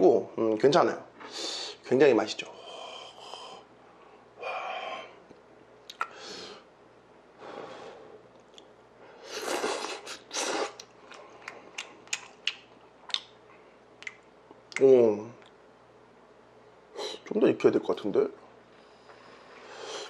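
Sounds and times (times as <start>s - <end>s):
noodle slurping: 9.2s - 10.9s
wet chewing smacks: 9.5s - 13.4s, 14.0s - 14.8s.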